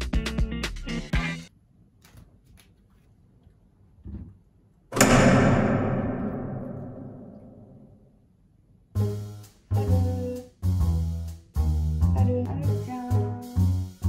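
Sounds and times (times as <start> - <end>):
ringing percussion hit: 5.0 - 8.1.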